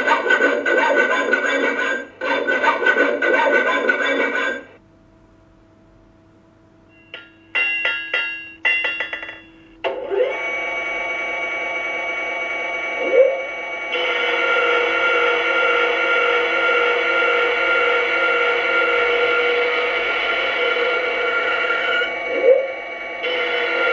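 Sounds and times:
hammer on anvil clangs: 7.1s - 9.7s.

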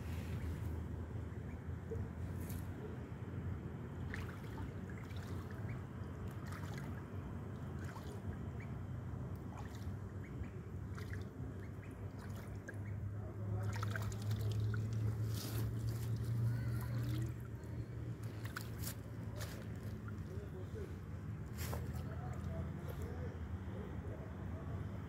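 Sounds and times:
steady low hum: 0.0s - 25.0s
duckling splashing in water: 4.0s - 8.7s, 9.3s - 17.6s, 18.2s - 20.4s.

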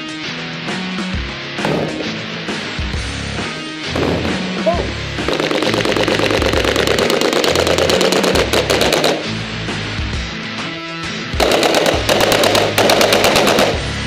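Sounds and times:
background music: 0.0s - 14.0s
airsoft guns full-auto fire: 5.2s - 9.4s, 11.4s - 14.0s.

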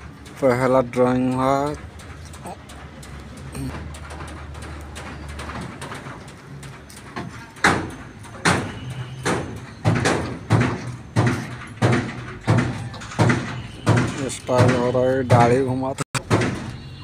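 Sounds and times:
heavy ringing knocks: 3.7s - 17.0s.

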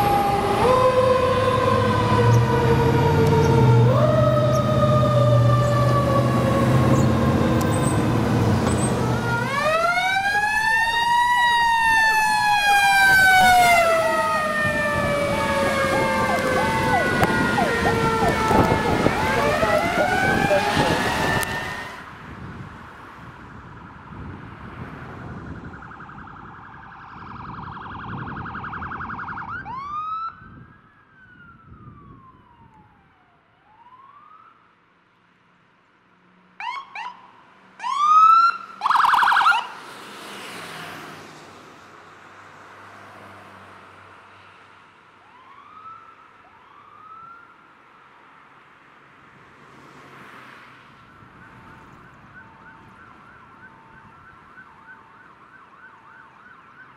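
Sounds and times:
electronic sirens: 0.0s - 22.2s, 25.3s - 34.6s, 36.6s - 39.8s, 51.0s - 56.9s.

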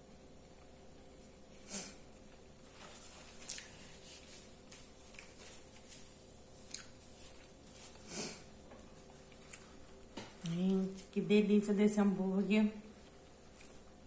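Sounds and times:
closed-mouth chewing: 6.6s - 7.6s, 8.3s - 10.6s.

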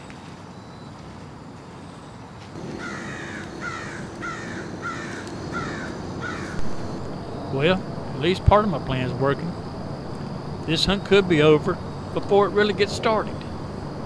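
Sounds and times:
bird harsh falling calls: 2.6s - 6.9s.

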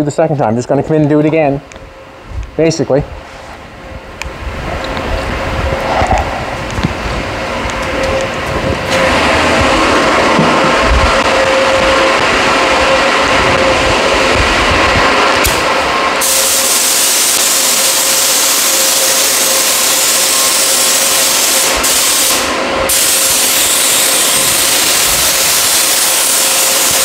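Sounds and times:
steady hum: 0.0s - 27.0s
paint spray gun hissing: 15.4s - 27.0s.

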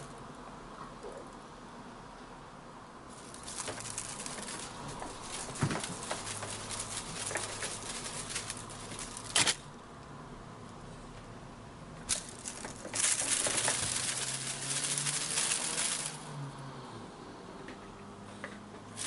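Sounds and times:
crinkly rustling of feather toy: 3.1s - 9.7s, 12.1s - 16.4s.

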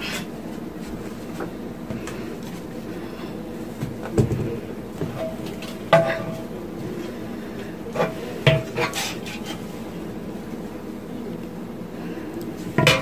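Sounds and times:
metal cookware clanking: 8.0s - 9.6s, 12.8s - 13.0s.

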